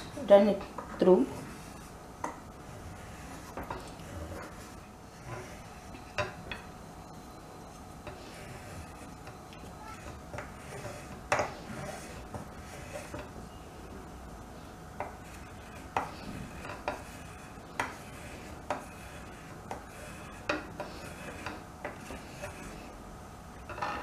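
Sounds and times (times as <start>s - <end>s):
peeler scraping chocolate: 2.6s - 6.4s, 7.7s - 13.4s, 15.0s - 23.0s.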